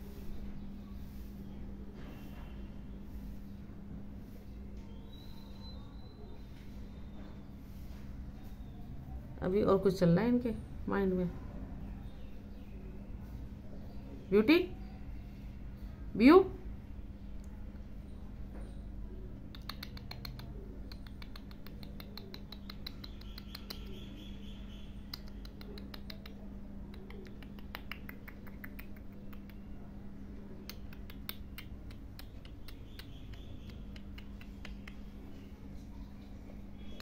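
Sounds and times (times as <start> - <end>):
steady low hum: 0.0 - 37.0
parakeet clicking: 19.5 - 24.0, 25.1 - 29.7, 30.7 - 35.2.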